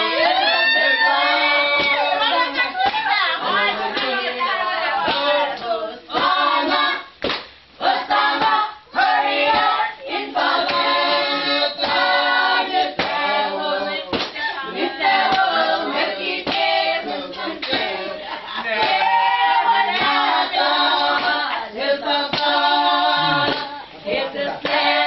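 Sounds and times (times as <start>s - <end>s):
group singing: 0.0s - 25.0s
hand claps: 1.8s - 3.1s, 7.2s - 7.6s, 10.6s - 10.9s, 14.1s - 14.4s, 16.4s - 16.8s, 17.4s - 17.9s, 18.8s - 19.1s, 19.9s - 20.2s, 22.3s - 22.6s, 23.4s - 23.7s.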